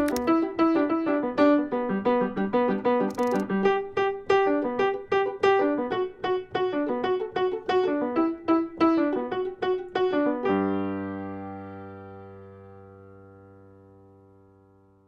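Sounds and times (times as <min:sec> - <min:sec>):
piano music: 0:05.4 - 0:14.4.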